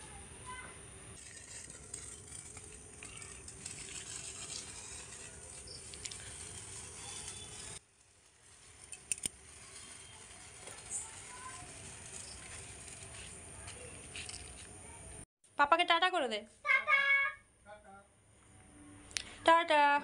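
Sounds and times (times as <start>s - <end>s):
sparkler fizzing: 1.2s - 15.0s.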